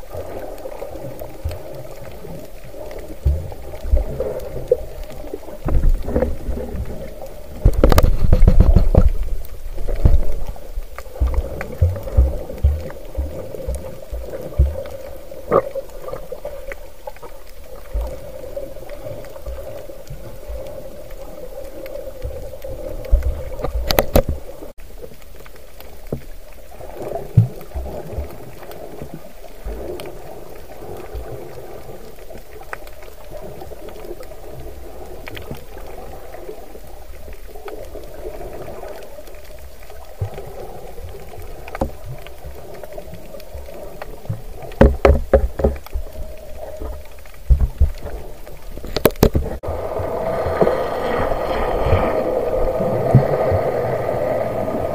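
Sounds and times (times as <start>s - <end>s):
low underwater thumps and knocks: 7.6s - 10.4s, 44.7s - 46.1s, 47.5s - 48.2s.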